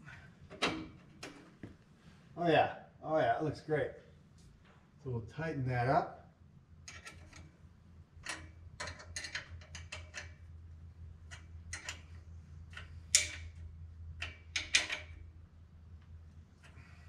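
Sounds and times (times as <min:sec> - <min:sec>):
steady low hum: 0:00.0 - 0:17.0
wrench clicking: 0:08.2 - 0:10.4, 0:11.3 - 0:13.6, 0:14.2 - 0:15.2.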